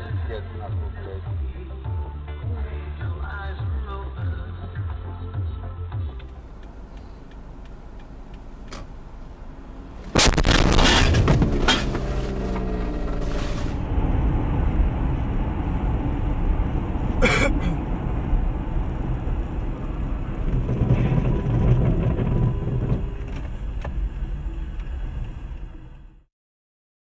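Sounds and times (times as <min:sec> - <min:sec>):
car engine and road noise: 0:00.0 - 0:26.3
sharp bang: 0:10.1 - 0:13.7.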